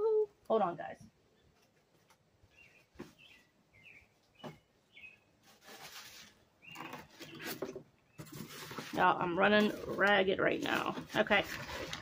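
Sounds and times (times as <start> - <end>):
rustling and handling noise: 1.2 - 12.0
faint bird chirping: 2.4 - 8.5.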